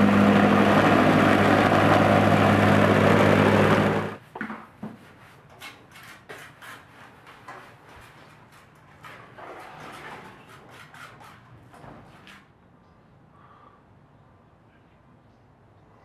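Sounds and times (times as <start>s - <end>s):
plate compactor running: 0.0s - 4.2s.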